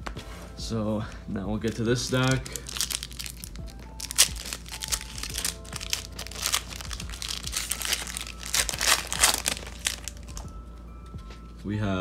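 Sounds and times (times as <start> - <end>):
soft background music: 0.0 - 12.0
foil wrapper crinkling and tearing: 1.6 - 10.5.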